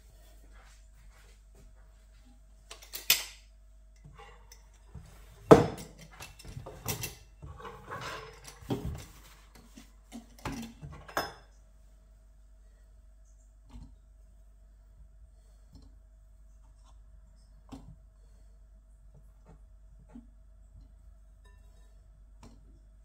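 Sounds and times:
metal clinks and knocks: 0:04.0 - 0:09.0.

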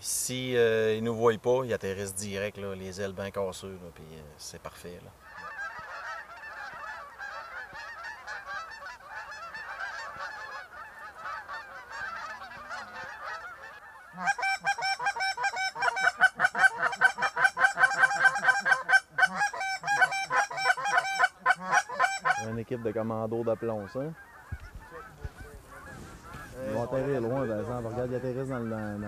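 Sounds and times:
geese honking: 0:05.2 - 0:29.0.

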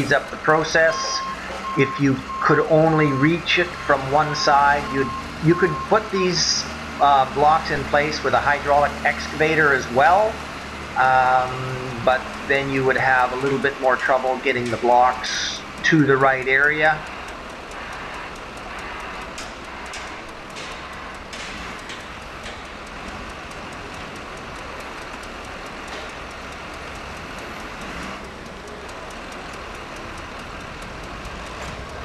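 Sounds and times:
diesel engines running: 0:00.0 - 0:32.0
clanks and knocks: 0:19.3 - 0:23.2.

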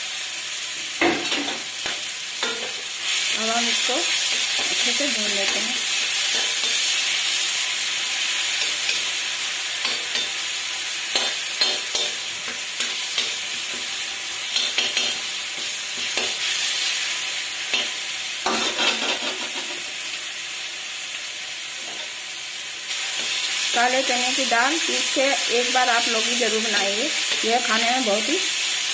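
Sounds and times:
onion sizzling in hot oil: 0:00.0 - 0:28.9
spatula scraping pan: 0:17.7 - 0:19.8.

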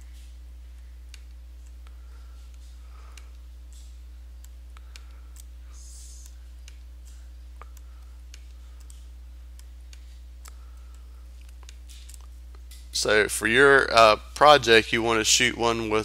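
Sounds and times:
low electrical hum: 0:00.0 - 0:16.0
computer mouse clicks: 0:01.1 - 0:12.9.

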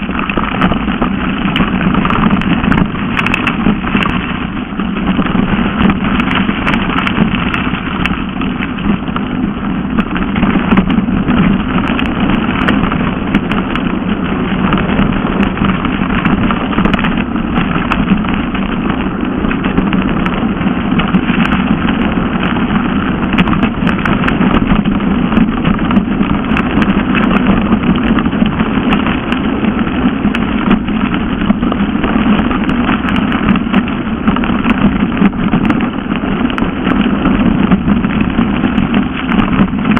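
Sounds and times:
tyre rumble over gravel: 0:00.0 - 0:39.9
wind noise on microphone: 0:00.0 - 0:39.9.

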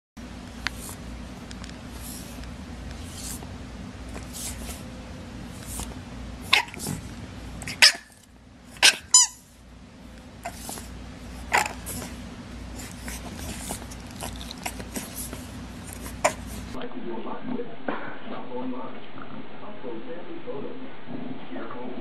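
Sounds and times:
steady low hum: 0:00.2 - 0:22.0
puppies yapping: 0:06.4 - 0:07.0, 0:07.6 - 0:09.4, 0:11.4 - 0:12.2.

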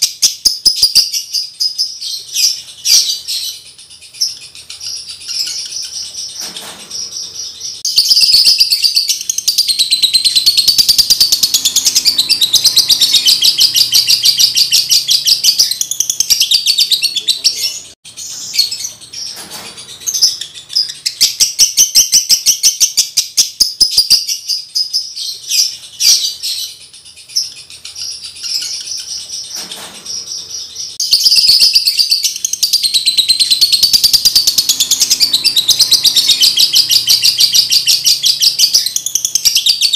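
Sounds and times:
bird chattering trills: 0:00.0 - 0:39.9
bird twittering: 0:00.0 - 0:39.9.

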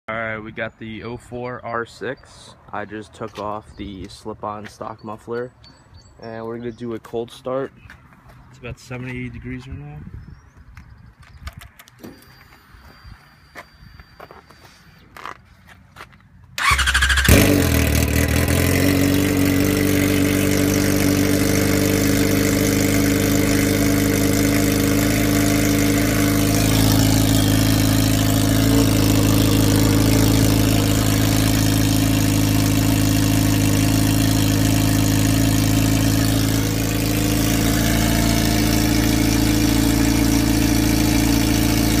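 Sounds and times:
motorcycle starter turning: 0:16.6 - 0:19.2
loud motorcycle engine idle: 0:16.6 - 0:42.0.

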